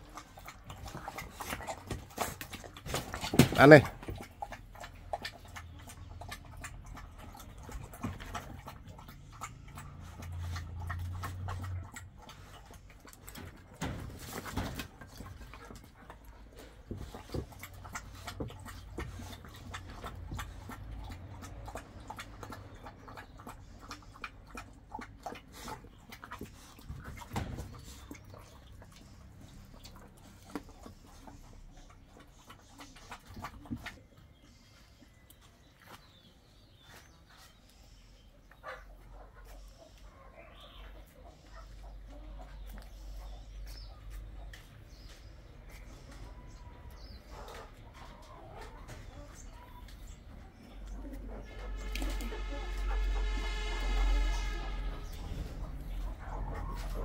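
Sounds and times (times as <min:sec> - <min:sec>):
dogs chewing from metal bowl: 0:00.0 - 0:36.8, 0:45.8 - 0:53.7.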